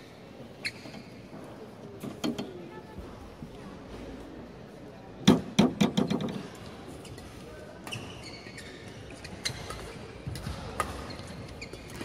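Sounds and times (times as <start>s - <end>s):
court shoes squeaking: 0.2s - 2.3s, 6.4s - 12.0s.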